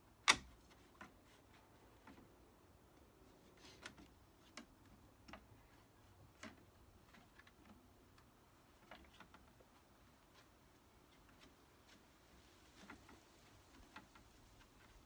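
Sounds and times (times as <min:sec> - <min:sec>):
faint clicks and taps: 0:00.2 - 0:15.0.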